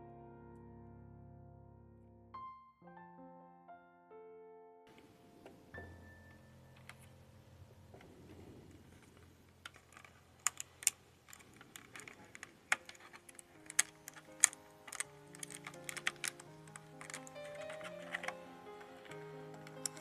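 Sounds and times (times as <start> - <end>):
quiet background music: 4.9 - 20.0
plastic blister tray crackling: 8.0 - 20.0.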